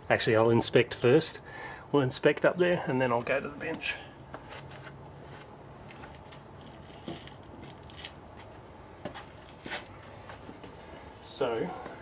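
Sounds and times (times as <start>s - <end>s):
low background noise: 0.0s - 12.0s
faint clicks and rustles: 4.3s - 10.9s.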